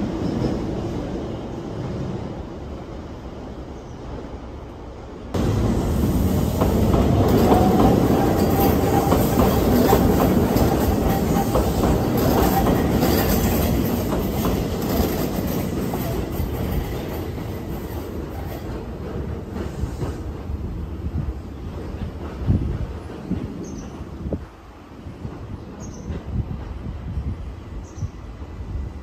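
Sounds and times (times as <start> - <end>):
train wheels clacking on rail joints: 5.4 - 27.0.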